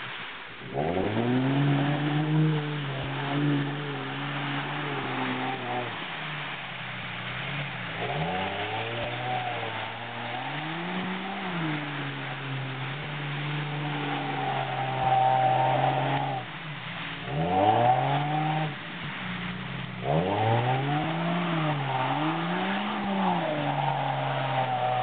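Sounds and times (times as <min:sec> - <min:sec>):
car engine revving: 0:00.0 - 0:25.0
wheels churning through mud: 0:00.0 - 0:25.0.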